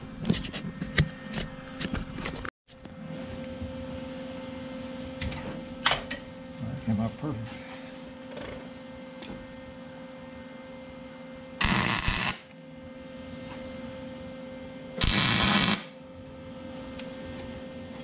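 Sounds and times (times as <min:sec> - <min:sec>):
steady electrical hum: 0:00.0 - 0:18.0
welding arc bursts: 0:11.6 - 0:12.5, 0:15.0 - 0:16.0.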